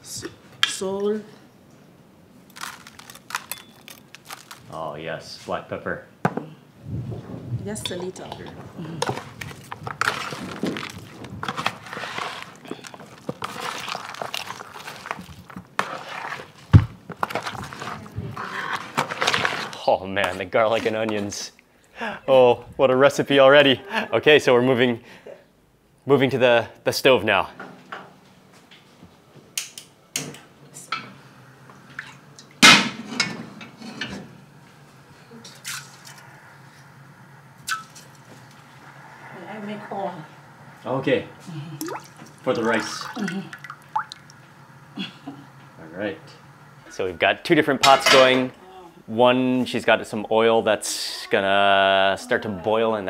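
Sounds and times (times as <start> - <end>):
wet mixing in plastic bowl: 9.0 - 20.9.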